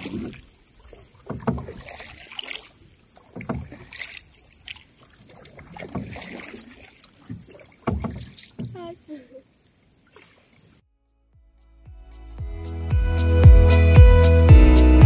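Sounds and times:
canoe paddles splashing in water: 0:00.0 - 0:10.8.

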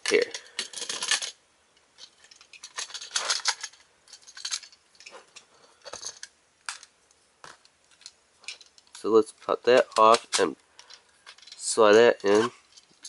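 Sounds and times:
plastic toy parts clicking: 0:00.0 - 0:01.4.

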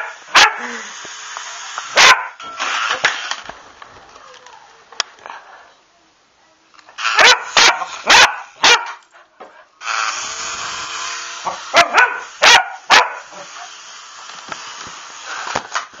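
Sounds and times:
toy helicopter rotor whirring: 0:00.0 - 0:03.4, 0:09.8 - 0:16.0
small dog barking sharply: 0:02.0 - 0:02.4, 0:07.2 - 0:09.0, 0:11.7 - 0:13.2.

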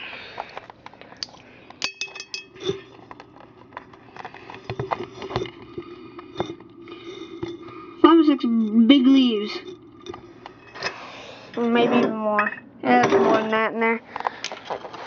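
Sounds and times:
faint steady hum: 0:00.0 - 0:15.0
ringing glass clink: 0:01.8 - 0:02.6
glass objects clinking: 0:01.8 - 0:03.3, 0:04.6 - 0:13.5.

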